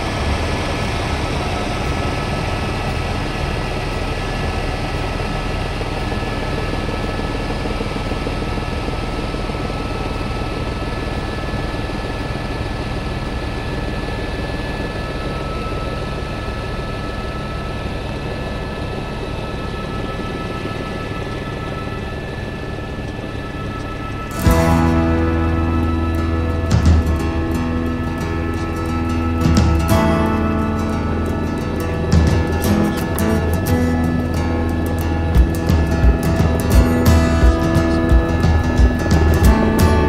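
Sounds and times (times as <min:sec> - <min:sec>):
aircraft cabin engine rush: 0:00.0 - 0:40.0
high whining tones: 0:00.0 - 0:40.0.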